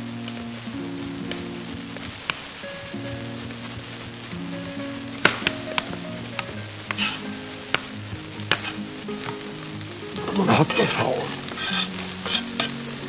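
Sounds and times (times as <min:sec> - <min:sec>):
oil sizzling in a pot: 0:00.0 - 0:13.0
soft background music: 0:00.0 - 0:13.0
knife chopping on cutting board: 0:08.5 - 0:08.8.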